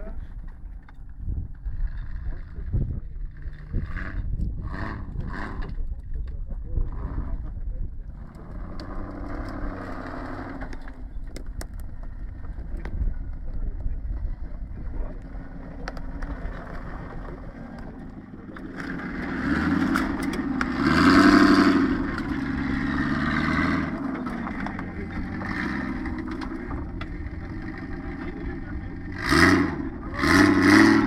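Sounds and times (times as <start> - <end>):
engine revving under load: 1.7 - 31.0.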